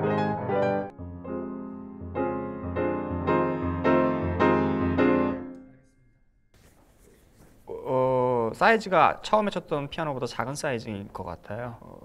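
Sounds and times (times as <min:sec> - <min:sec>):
grand piano chords: 0:00.0 - 0:06.0.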